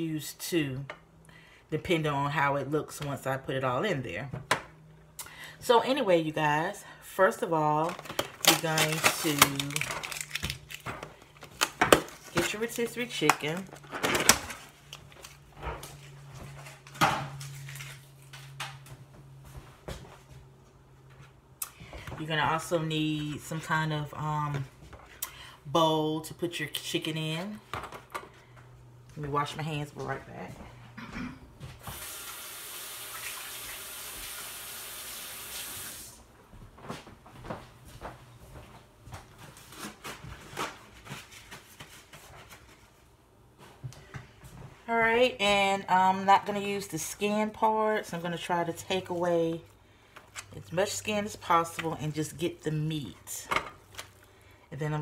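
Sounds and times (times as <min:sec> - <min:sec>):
low steady hum: 0:00.0 - 0:31.8.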